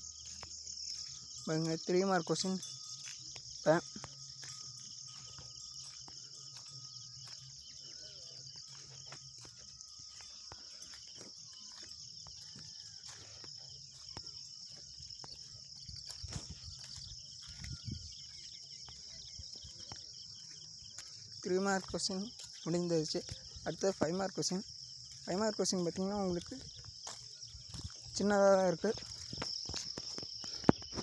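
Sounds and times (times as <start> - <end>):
insects chirring: 0.0 - 31.0.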